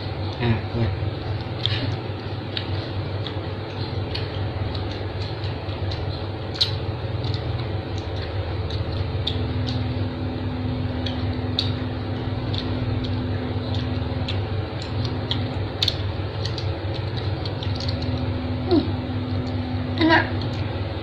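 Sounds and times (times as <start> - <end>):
low mechanical hum: 0.0 - 21.0
small clicks and ticks: 1.4 - 9.8, 12.4 - 18.3.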